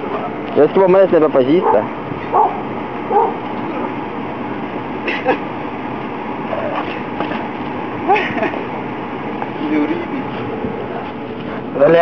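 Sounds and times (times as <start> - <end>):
dog yipping and barking: 1.6 - 3.4.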